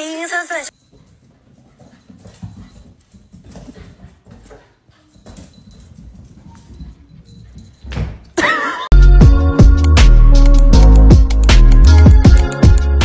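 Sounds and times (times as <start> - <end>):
cat paws pattering on wood floor: 0.8 - 8.3.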